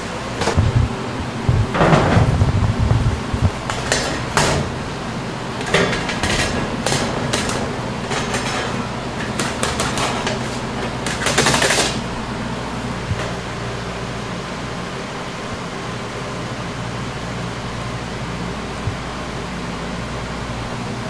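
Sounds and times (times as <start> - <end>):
steady low hum: 0.0 - 21.0
utensils tapping and scraping: 1.5 - 4.9, 5.6 - 12.1.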